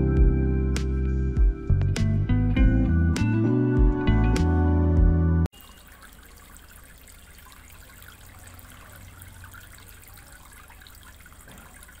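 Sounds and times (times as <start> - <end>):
fountain water trickling onto stones: 5.5 - 12.0
low steady pump hum: 5.5 - 12.0.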